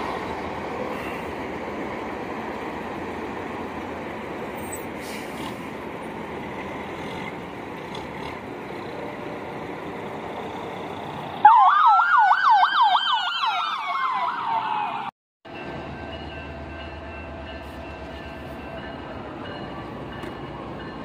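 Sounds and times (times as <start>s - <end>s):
road noise: 0.0s - 21.0s
emergency vehicle siren: 11.1s - 15.2s.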